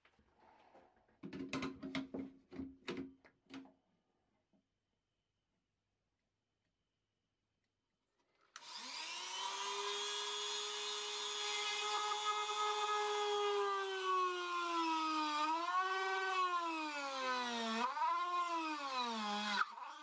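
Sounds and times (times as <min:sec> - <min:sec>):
rotary tool whining: 0:08.6 - 0:20.0.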